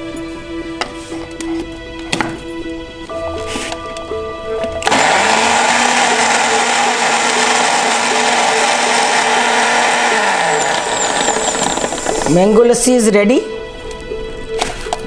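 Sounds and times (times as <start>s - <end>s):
electric blender running: 4.8s - 12.4s.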